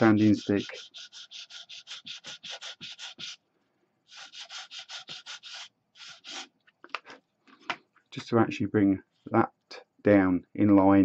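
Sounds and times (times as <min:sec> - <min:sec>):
sanding stick scraping: 0:00.0 - 0:03.4, 0:04.1 - 0:06.5.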